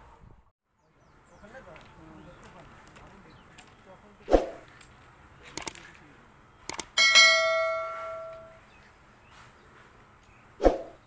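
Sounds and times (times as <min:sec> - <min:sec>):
notification bell ding: 0:07.0 - 0:08.6.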